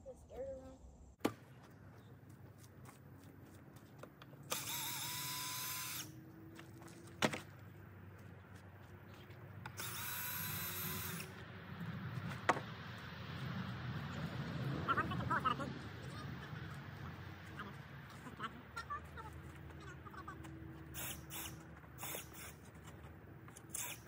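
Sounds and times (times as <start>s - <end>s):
power drill driving screws: 4.5s - 6.2s, 9.7s - 11.3s, 21.0s - 22.6s, 23.7s - 24.0s.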